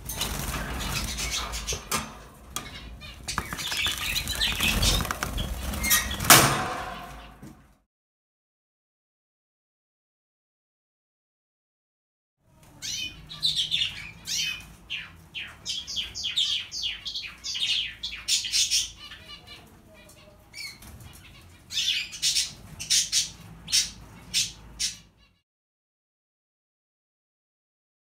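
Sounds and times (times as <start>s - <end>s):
wings fluttering: 0.0s - 2.2s, 3.0s - 7.3s
finches chirping: 2.6s - 6.2s, 12.8s - 19.5s.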